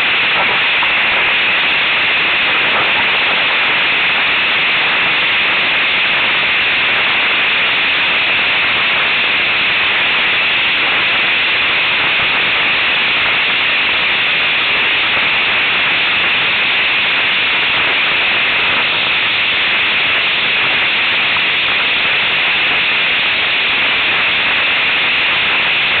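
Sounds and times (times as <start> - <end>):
wind and water spray rushing: 0.0 - 26.0.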